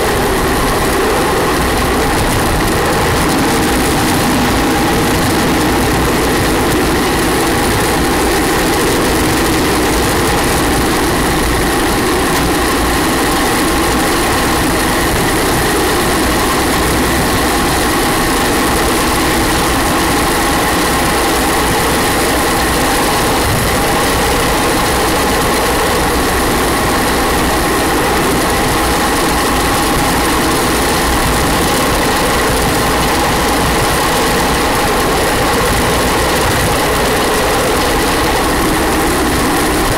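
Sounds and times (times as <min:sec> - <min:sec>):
steady high whine: 0:00.0 - 0:39.9
tyres rumbling on asphalt: 0:00.0 - 0:39.9.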